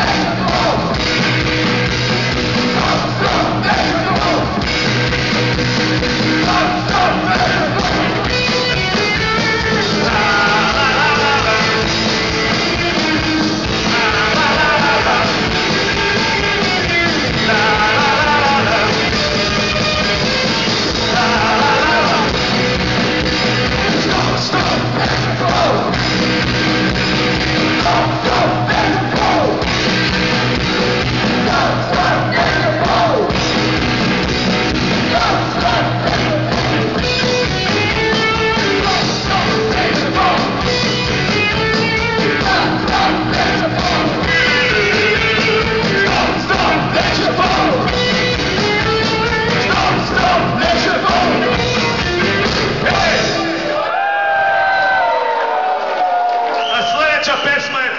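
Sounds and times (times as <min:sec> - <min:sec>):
singer shouting vocals: 0:00.0 - 0:01.0, 0:02.6 - 0:04.6, 0:06.3 - 0:08.4, 0:09.7 - 0:11.9, 0:13.8 - 0:19.2, 0:21.0 - 0:22.4, 0:23.9 - 0:26.0, 0:27.6 - 0:29.7, 0:31.4 - 0:33.4, 0:35.0 - 0:37.0, 0:38.0 - 0:40.7, 0:42.2 - 0:48.0, 0:49.4 - 0:51.8, 0:52.8 - 0:53.9
punk rock band playing live: 0:00.0 - 0:53.8.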